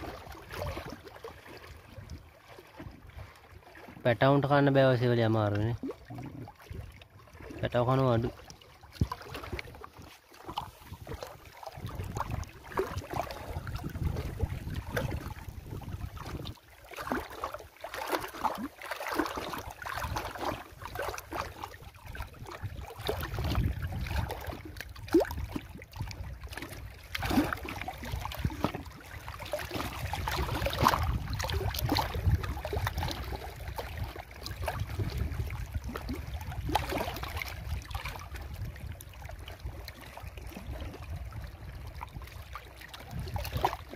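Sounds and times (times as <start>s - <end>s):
wind rumble on microphone: 1.7s - 3.4s, 8.9s - 16.6s, 19.8s - 43.9s
small waves splashing on rocks: 8.9s - 21.8s, 22.4s - 35.2s.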